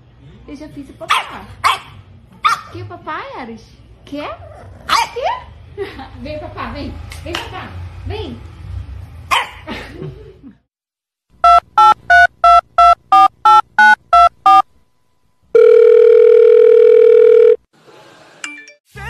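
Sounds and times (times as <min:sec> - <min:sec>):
steady phone tone: 0:11.4 - 0:14.6, 0:15.5 - 0:17.7
telephone keypad beeps: 0:11.4 - 0:14.6, 0:15.6 - 0:17.6.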